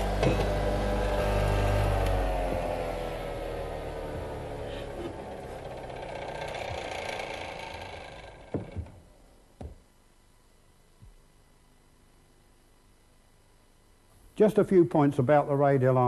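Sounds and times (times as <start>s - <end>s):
radial arm saw whine running down: 0.0s - 9.3s
knocks of wooden workpieces: 0.1s - 0.7s, 8.4s - 9.0s, 9.6s - 9.9s.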